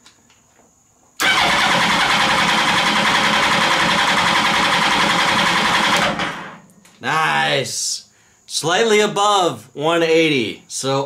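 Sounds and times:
motorcycle engine cranking on starter: 1.2s - 6.6s.

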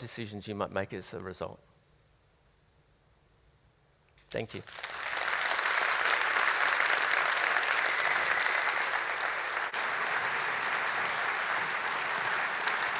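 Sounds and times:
audience applause: 4.6s - 12.9s.

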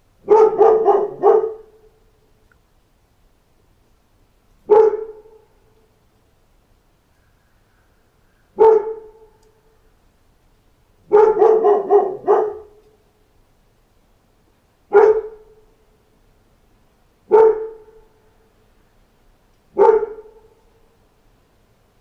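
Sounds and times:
dog barking: 0.2s - 2.0s, 4.7s - 5.5s, 8.6s - 9.4s, 11.1s - 12.8s, 14.9s - 15.7s, 17.3s - 18.2s, 19.7s - 20.7s.

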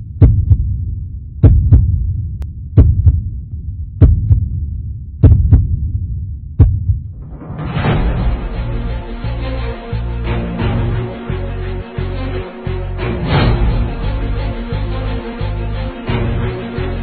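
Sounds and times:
heartbeat thumps: 0.0s - 7.4s
low hum: 0.0s - 17.0s
music: 7.1s - 17.0s.

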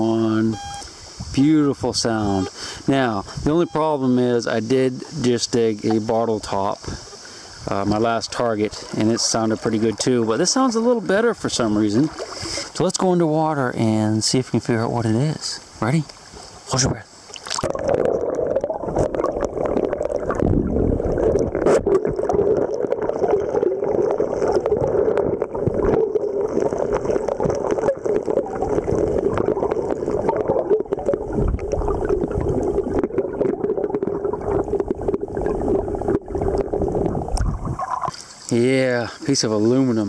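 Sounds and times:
muffled underwater rush: 0.0s - 40.0s.

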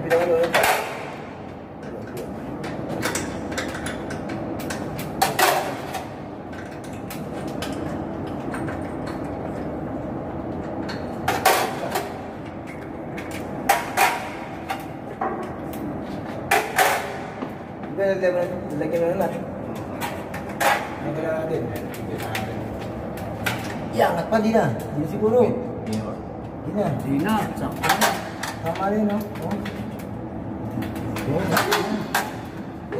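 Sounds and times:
steady background noise: 0.0s - 32.9s
metal clanks and knocks from tools: 1.8s - 9.7s.

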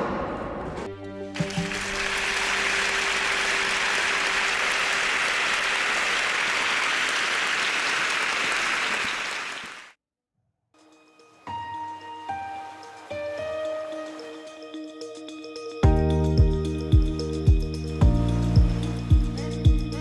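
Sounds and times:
music: 0.8s - 4.9s, 10.8s - 20.0s
audience applause: 1.4s - 10.0s.

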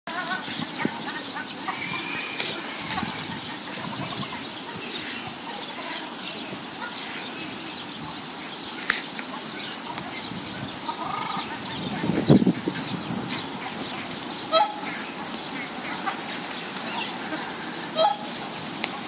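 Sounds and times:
goose calling softly: 13.6s - 18.3s.

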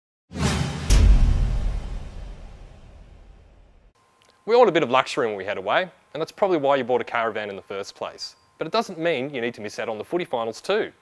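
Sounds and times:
whoosh: 0.3s - 3.9s
deep impact hit ringing: 0.4s - 3.9s.

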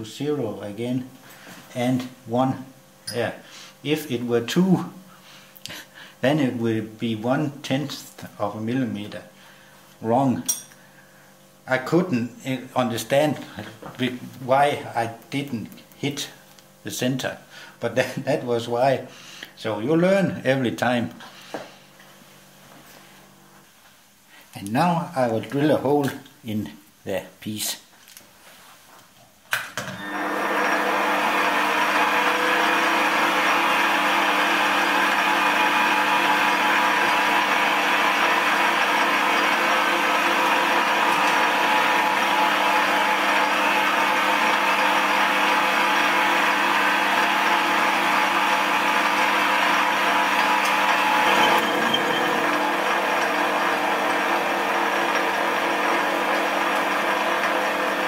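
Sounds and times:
drill boring into metal: 30.0s - 58.0s
metal lathe humming: 30.0s - 58.0s.

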